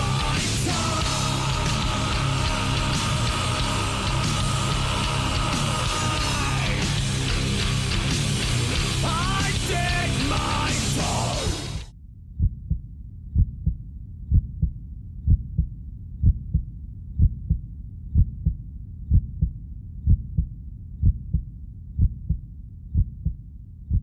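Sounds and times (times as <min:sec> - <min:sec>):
heartbeat thumps: 0:12.4 - 0:24.0.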